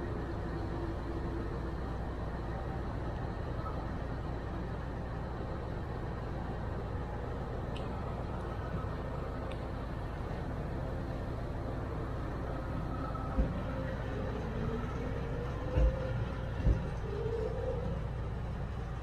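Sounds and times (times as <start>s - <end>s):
freight train rumbling past: 0.0s - 19.0s
faint wavering squeals: 8.0s - 19.0s.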